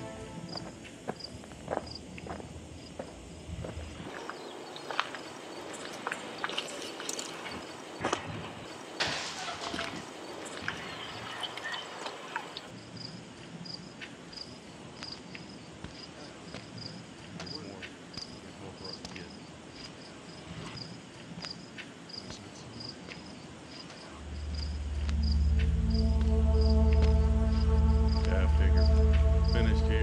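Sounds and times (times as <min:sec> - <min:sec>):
low musical drone: 0:00.0 - 0:01.1, 0:24.2 - 0:30.0
cricket chirping: 0:00.0 - 0:30.0.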